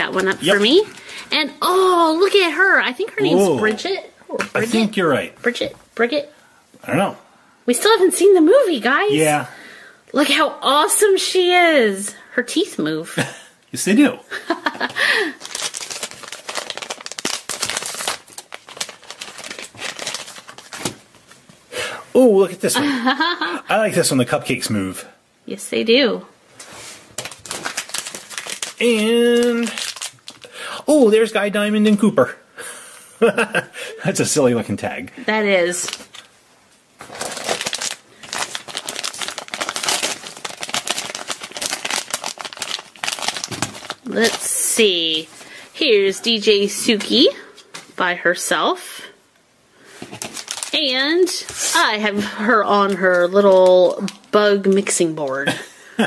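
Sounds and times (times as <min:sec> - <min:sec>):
foil bag crinkling: 0:00.0 - 0:01.3, 0:14.6 - 0:21.4, 0:26.8 - 0:30.5, 0:37.0 - 0:45.5, 0:50.0 - 0:52.0, 0:52.7 - 0:55.2
plastic packet rustling: 0:00.0 - 0:01.3, 0:14.8 - 0:21.6, 0:26.7 - 0:30.5, 0:35.7 - 0:36.3, 0:37.0 - 0:45.6, 0:50.0 - 0:52.0, 0:52.6 - 0:55.3.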